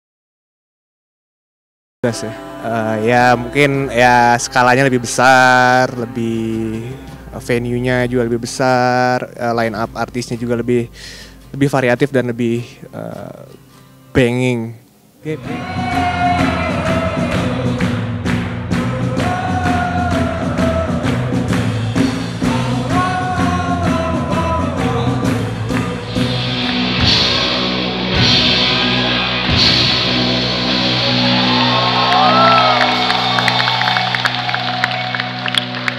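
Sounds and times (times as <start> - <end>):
person singing: 2.0 - 8.8, 15.2 - 18.0, 18.8 - 30.1
electric guitars: 14.8 - 35.9
drums keeping a steady beat: 15.4 - 34.3.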